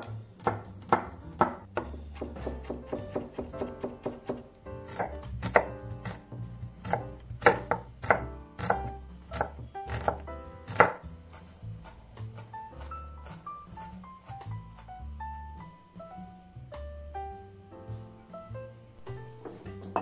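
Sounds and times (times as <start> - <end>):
knife chopping on wooden board: 0.0 - 14.9.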